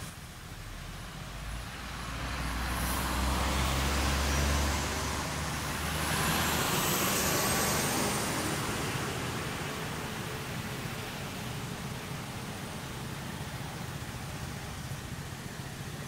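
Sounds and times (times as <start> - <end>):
hiss: 0.0 - 16.0
vehicle engine rumble passing: 0.0 - 16.0
faint high whine: 4.1 - 16.0.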